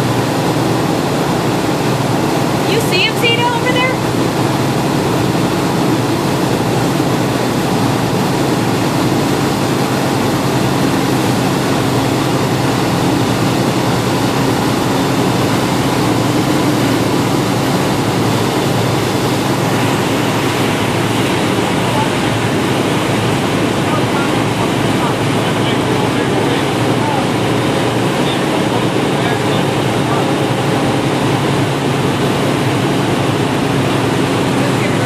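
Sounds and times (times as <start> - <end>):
churning wake water: 0.0 - 35.0
motorboat engine hum: 0.0 - 35.0
wind: 0.0 - 35.0.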